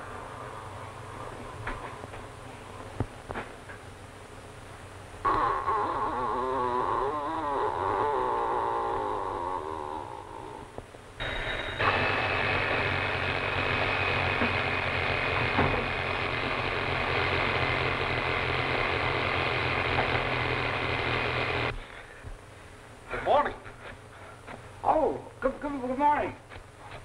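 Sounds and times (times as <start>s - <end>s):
bell alarm clock ringing: 11.2s - 12.8s.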